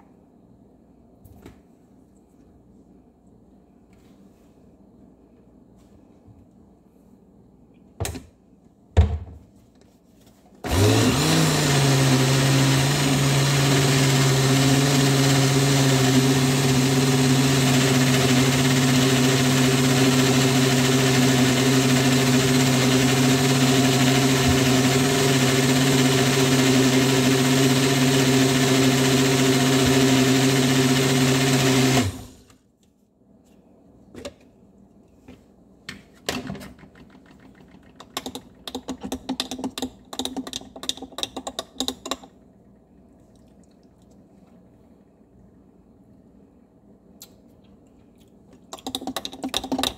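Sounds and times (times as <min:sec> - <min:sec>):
blender motor running: 0:10.6 - 0:32.4.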